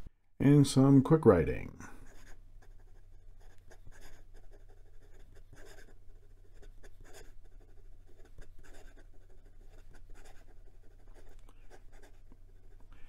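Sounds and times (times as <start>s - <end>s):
fountain pen writing on paper: 2.1s - 13.0s.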